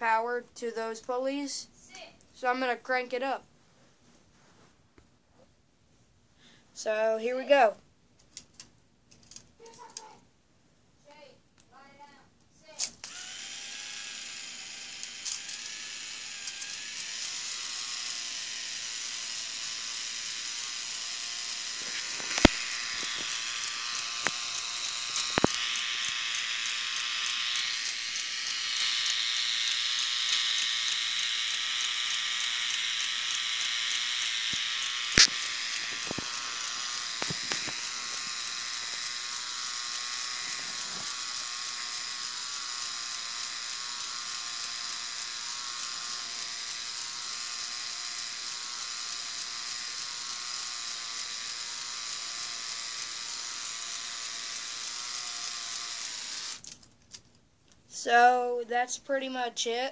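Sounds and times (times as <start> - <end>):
plastic gears whirring: 12.9 - 57.3.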